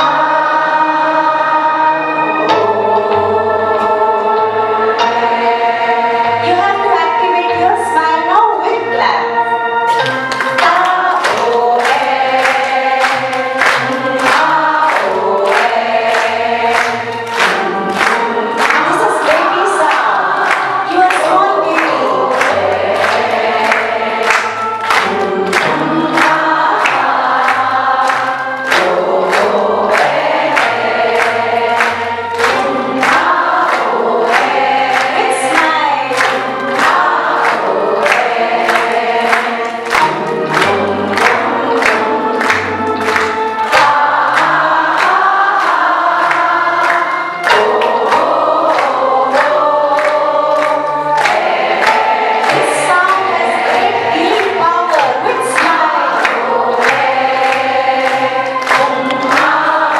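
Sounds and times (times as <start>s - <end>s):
women singing together: 0.0s - 8.9s, 10.5s - 59.9s
hand-clapping in time: 9.8s - 59.9s
woman singing into a microphone: 35.2s - 36.3s, 52.6s - 56.4s.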